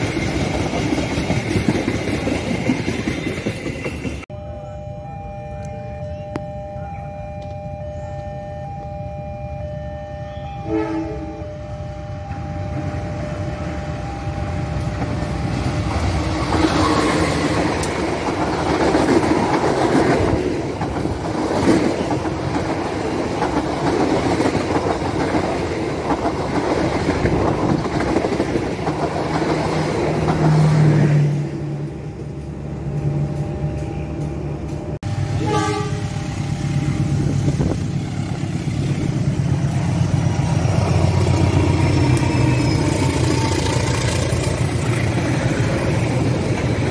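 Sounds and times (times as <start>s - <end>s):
train wheels clattering on rails: 0.0s - 4.3s, 14.9s - 31.3s
diesel locomotive engine drone: 0.0s - 46.9s
train horn: 10.2s - 12.9s, 35.1s - 36.4s.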